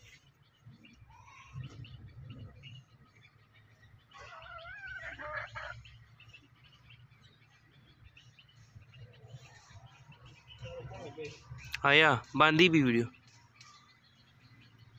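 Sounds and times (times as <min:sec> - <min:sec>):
bird warbling call: 0:04.0 - 0:06.1.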